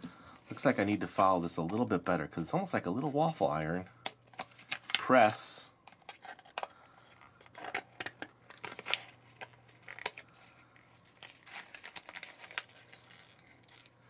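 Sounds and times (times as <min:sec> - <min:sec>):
stiff plastic crinkling: 0:04.3 - 0:14.0.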